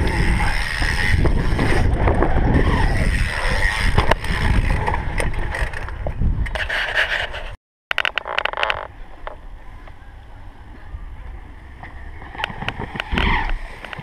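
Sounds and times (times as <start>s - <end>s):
bike rolling past: 0.0s - 6.0s
bike tyres rolling on dirt: 0.0s - 6.5s, 11.6s - 14.0s
wind noise on microphone: 0.0s - 9.8s, 10.4s - 14.0s.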